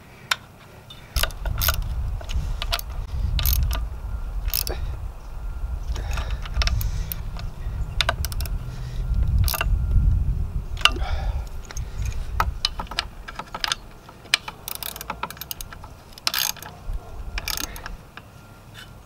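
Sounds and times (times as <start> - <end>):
ratchet wrench clicking: 1.2 - 4.8, 5.9 - 8.6, 9.2 - 9.7, 10.8 - 18.0
low rumble: 1.2 - 14.0.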